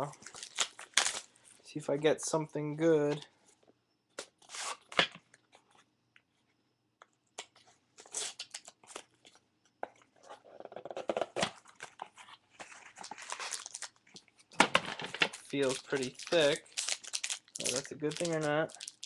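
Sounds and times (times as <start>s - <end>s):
packaging tearing and crinkling: 0.2s - 1.3s, 12.6s - 14.2s, 15.1s - 19.0s.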